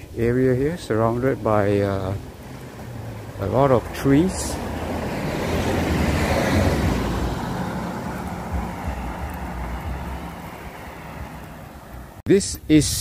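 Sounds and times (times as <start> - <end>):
car passing: 0.9 - 12.2.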